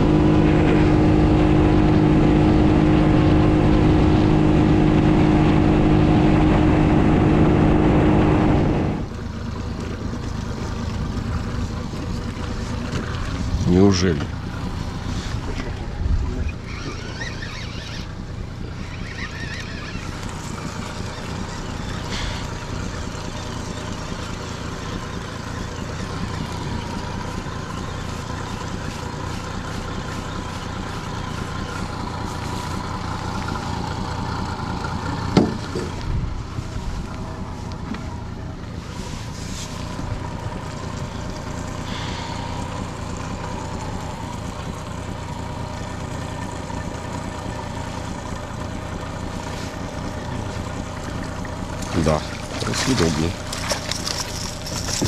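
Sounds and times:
water noise around a boat: 0.0s - 55.0s
wind: 0.0s - 55.0s.

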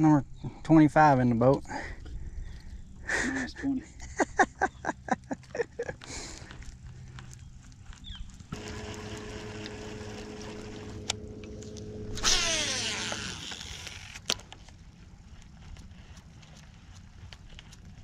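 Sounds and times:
electric trolling motor humming: 6.2s - 14.4s.

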